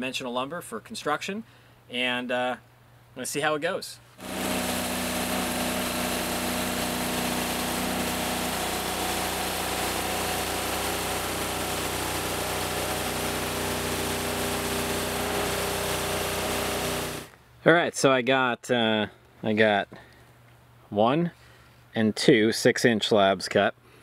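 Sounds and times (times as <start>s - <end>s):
band saw blade cutting wood: 4.2s - 17.3s
sawmill engine running: 4.2s - 17.3s.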